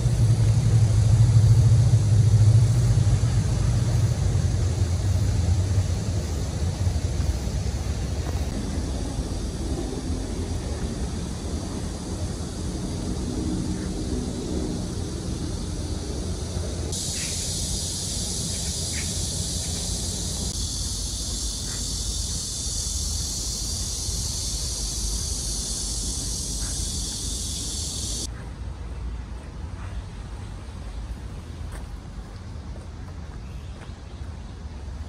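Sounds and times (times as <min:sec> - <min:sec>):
low background rumble: 0:00.0 - 0:28.3
cicadas droning: 0:00.0 - 0:35.0.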